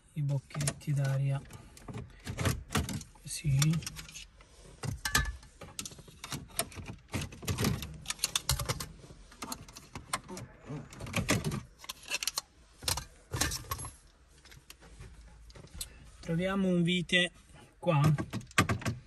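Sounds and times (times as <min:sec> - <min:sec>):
plastic air vents clicking and rattling: 0:00.2 - 0:14.8, 0:17.9 - 0:19.0.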